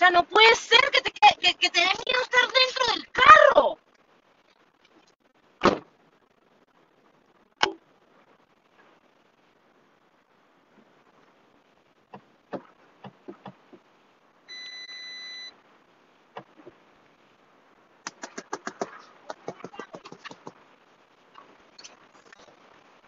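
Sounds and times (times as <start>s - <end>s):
electronic beep: 14.5s - 15.5s
fast sharp clicks: 18.0s - 20.6s.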